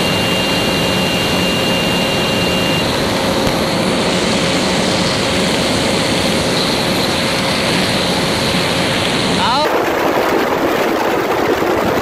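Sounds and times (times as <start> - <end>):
wind rushing on microphone: 3.1 - 12.0.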